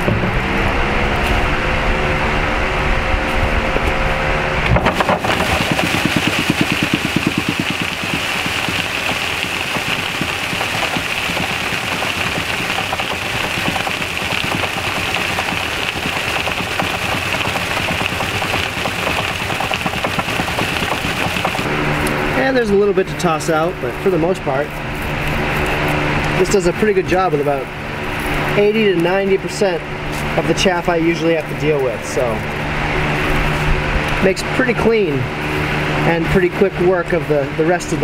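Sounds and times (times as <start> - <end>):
fan blowing: 0.0 - 38.0
threshing machine rattling: 4.6 - 21.7.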